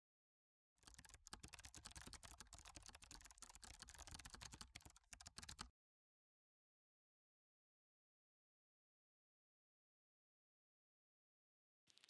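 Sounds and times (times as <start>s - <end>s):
fast typing on keyboard: 0.8s - 5.7s.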